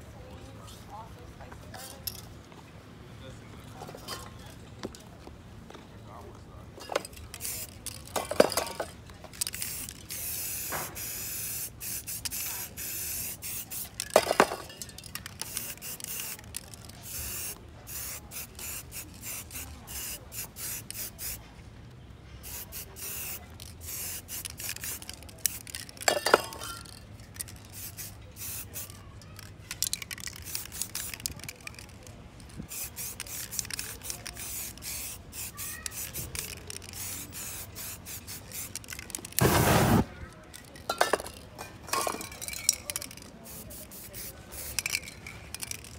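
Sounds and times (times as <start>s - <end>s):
spray paint can hissing: 7.3s - 8.6s, 9.3s - 21.4s, 22.4s - 32.0s, 32.7s - 40.2s, 42.3s - 45.9s.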